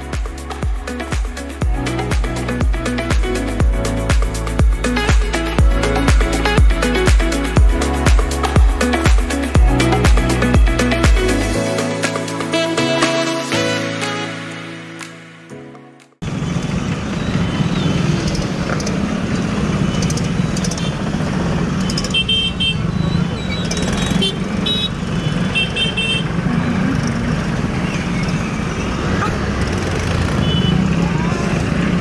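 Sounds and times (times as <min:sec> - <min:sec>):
motorbike and tractor engines droning: 0:16.2 - 0:32.0.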